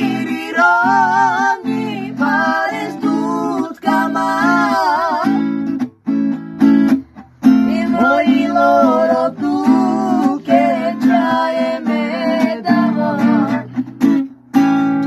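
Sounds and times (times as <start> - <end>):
person singing: 0.0 - 5.6, 7.5 - 13.9
acoustic guitar strumming: 0.0 - 15.0.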